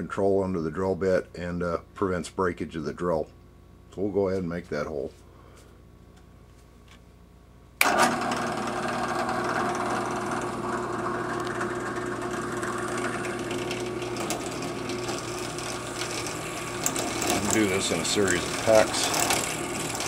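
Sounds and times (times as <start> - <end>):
drill press motor humming: 7.8 - 20.0.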